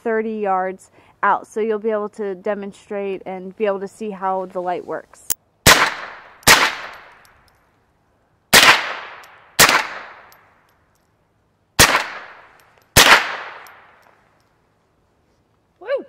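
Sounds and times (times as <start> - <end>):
rifle shots: 5.6 - 7.2, 8.5 - 10.4, 11.8 - 14.0.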